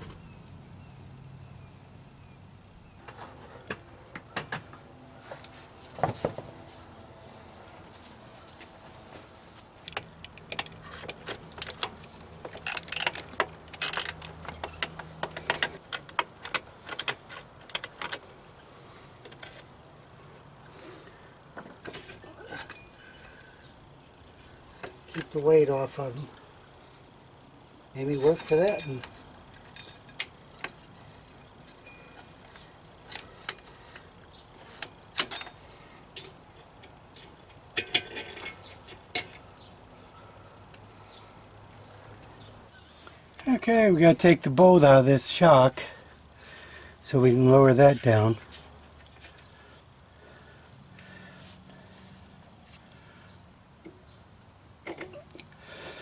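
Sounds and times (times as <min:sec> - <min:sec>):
metal clinks: 0:22.1 - 0:23.3, 0:28.2 - 0:33.7, 0:34.7 - 0:36.4.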